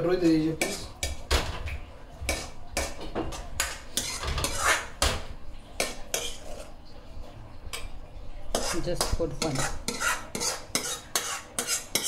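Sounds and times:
metal utensil scraping a wok: 0:02.3 - 0:05.0, 0:05.8 - 0:06.8, 0:08.5 - 0:12.0.

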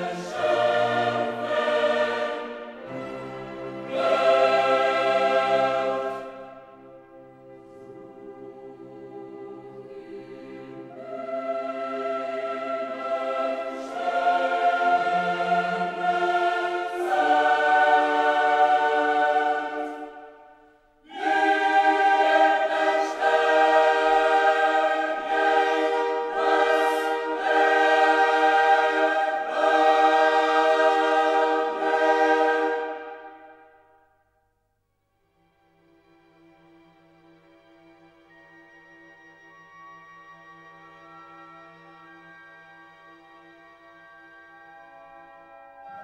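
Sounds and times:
choral music: 0:00.0 - 0:46.0.

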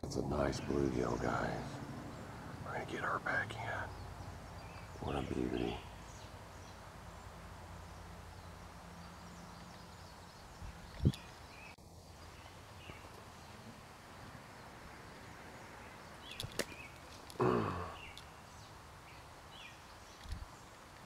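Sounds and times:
sharp clicks: 0:16.3 - 0:17.4.

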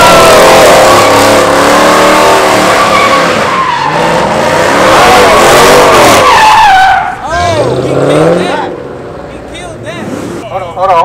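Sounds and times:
car engine revving: 0:00.0 - 0:11.0
tyres squealing: 0:02.5 - 0:08.8.

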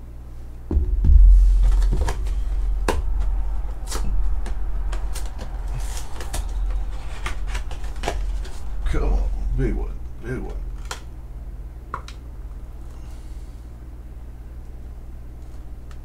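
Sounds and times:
cardboard knocks and scrapes: 0:00.7 - 0:03.3
low handling rumble: 0:00.7 - 0:14.4.

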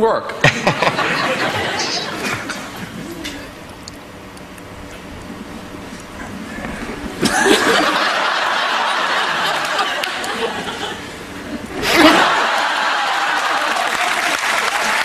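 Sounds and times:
audience laughing: 0:00.4 - 0:03.5, 0:07.1 - 0:15.0
applause: 0:09.4 - 0:10.4, 0:12.1 - 0:15.0.

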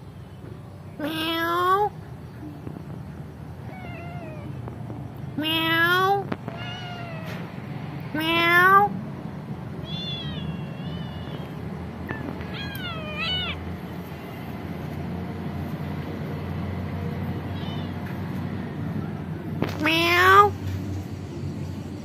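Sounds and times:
cats meowing: 0:01.0 - 0:02.0, 0:03.6 - 0:04.8, 0:05.4 - 0:09.0, 0:09.8 - 0:13.8, 0:17.4 - 0:18.2, 0:19.6 - 0:20.5.

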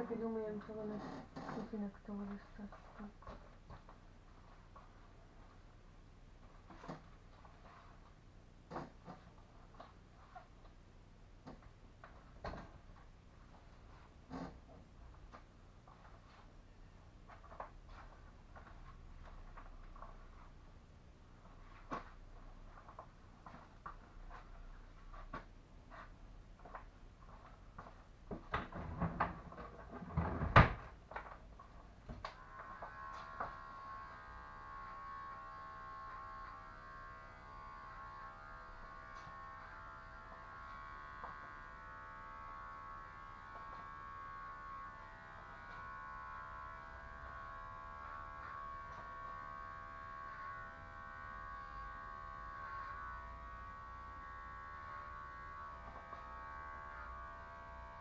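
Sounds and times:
electric hair clippers humming: 0:32.2 - 0:58.0.

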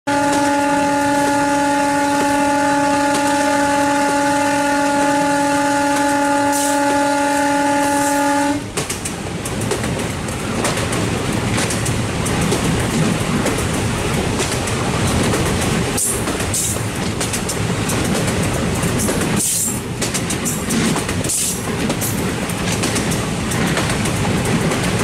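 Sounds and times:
locomotive horn blast: 0:00.1 - 0:08.7
train running rumble: 0:00.1 - 0:25.0
wheels clicking over rail joints: 0:08.7 - 0:25.0.

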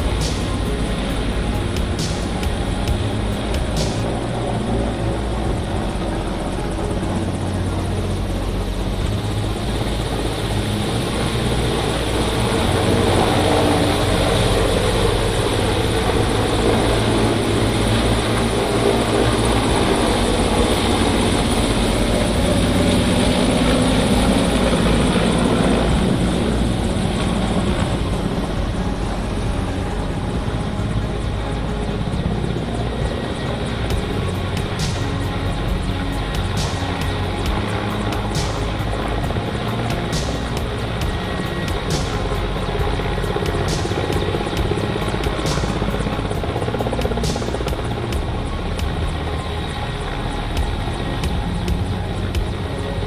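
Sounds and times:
helicopter rotor chopping: 0:00.0 - 0:53.0
turbine engine whine: 0:00.0 - 0:53.0.

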